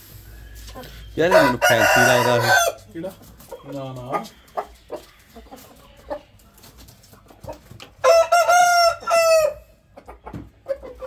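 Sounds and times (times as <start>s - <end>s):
hens clucking: 0.6s - 11.0s
rooster crowing: 1.3s - 2.8s, 8.0s - 9.7s.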